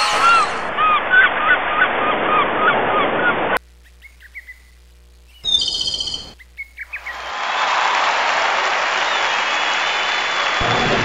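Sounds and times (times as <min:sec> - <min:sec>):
background hiss: 0:03.6 - 0:07.4
faint bird chirps: 0:03.8 - 0:07.3.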